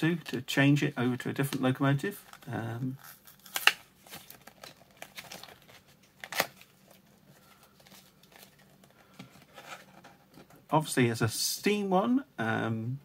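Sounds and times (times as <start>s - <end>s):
paper crinkling and rustling: 1.4s - 10.5s.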